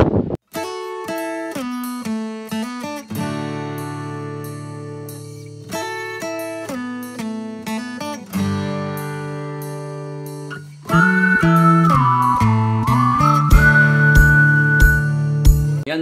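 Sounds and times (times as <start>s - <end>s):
acoustic guitar music: 0.4s - 15.9s.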